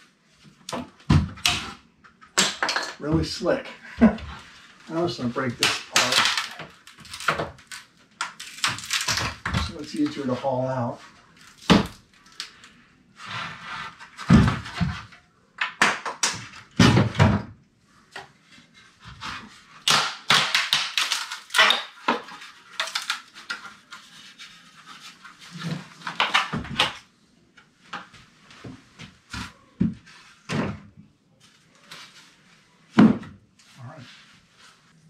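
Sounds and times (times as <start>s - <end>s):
wood cracking and creaking: 5.4s - 10.4s, 19.9s - 27.0s.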